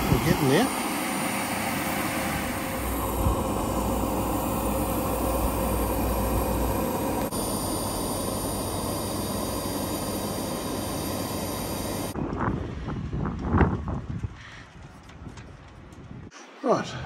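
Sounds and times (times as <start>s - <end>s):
power sander running: 0.0s - 12.2s.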